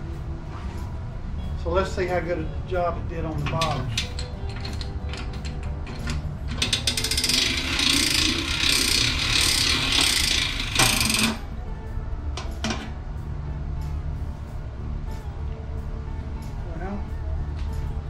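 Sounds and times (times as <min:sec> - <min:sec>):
gears clattering: 0:03.6 - 0:11.4.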